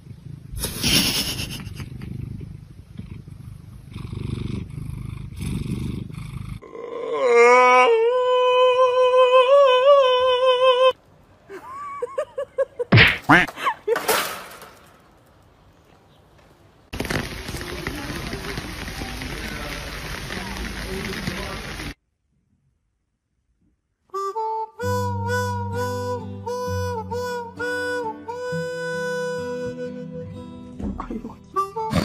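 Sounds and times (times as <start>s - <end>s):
cat purring: 0.0s - 6.6s.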